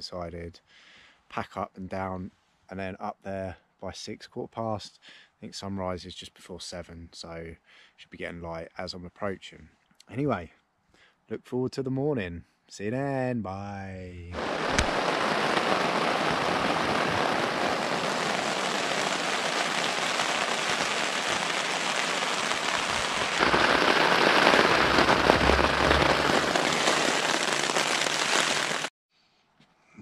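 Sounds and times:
heavy rain on tent: 14.4s - 28.9s.

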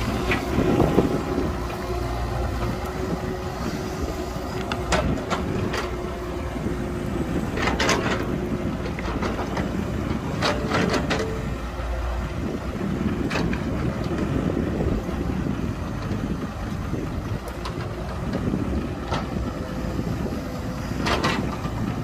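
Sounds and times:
engine whine: 0.0s - 22.0s
excavator diesel engine running: 0.0s - 22.0s
knocks and clatter: 7.5s - 11.4s.

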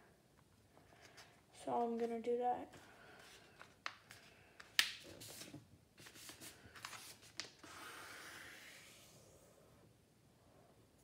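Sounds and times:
paper crinkling: 5.1s - 7.6s.

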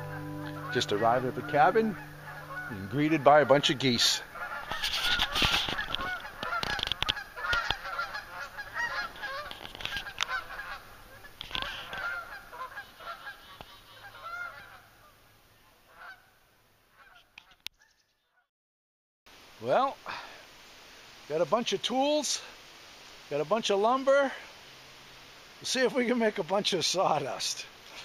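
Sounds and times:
geese honking: 0.0s - 15.2s, 15.9s - 17.6s.

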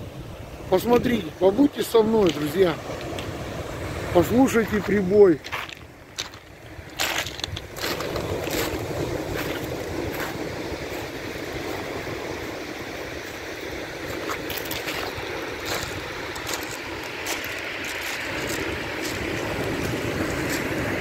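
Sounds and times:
surf washing over pebbles: 0.0s - 21.0s.

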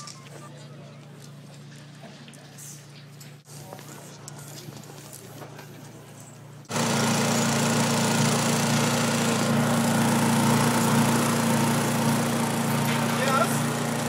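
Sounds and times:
engine running loudly: 6.7s - 14.0s.

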